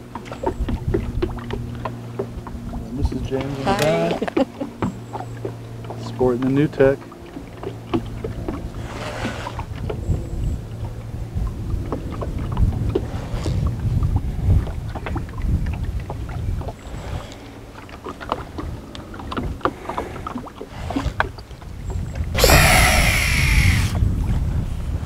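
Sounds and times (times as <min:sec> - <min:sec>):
wind rumble on microphone: 0:00.0 - 0:04.8, 0:07.8 - 0:25.0
small clicks and knocks from boat: 0:00.0 - 0:22.3
fishing reel whirring: 0:22.4 - 0:24.0.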